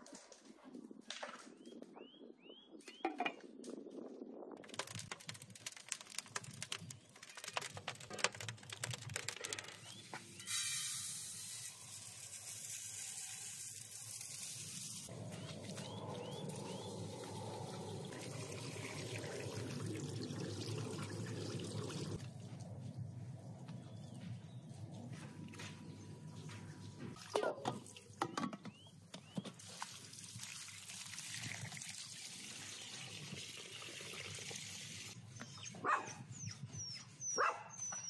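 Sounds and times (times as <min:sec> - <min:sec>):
wood fire crackling: 0:04.6 - 0:10.1
rice pouring into metal bowl: 0:10.5 - 0:15.1.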